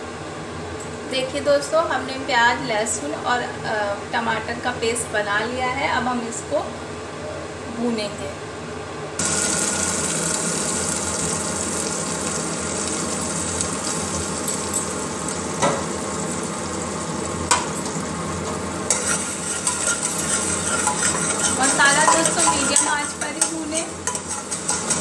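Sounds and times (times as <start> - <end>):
onion sizzling in oil: 9.2 - 25.0
stirring clatter: 18.4 - 25.0.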